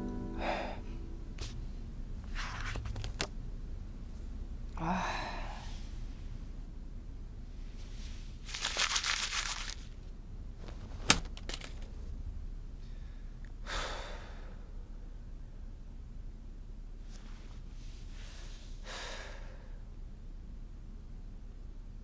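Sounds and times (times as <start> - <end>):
paper rustling: 2.3 - 3.3, 8.4 - 10.0.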